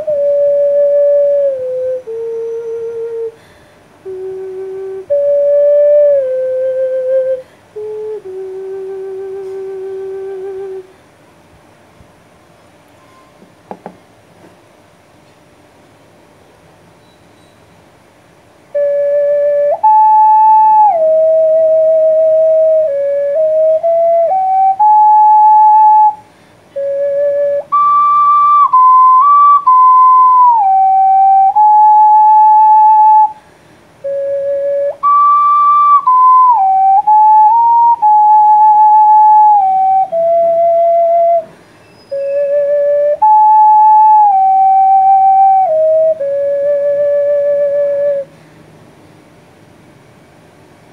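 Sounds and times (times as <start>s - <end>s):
ocarina melody: 0.0s - 3.4s, 4.0s - 10.9s, 18.7s - 33.4s, 34.0s - 48.3s.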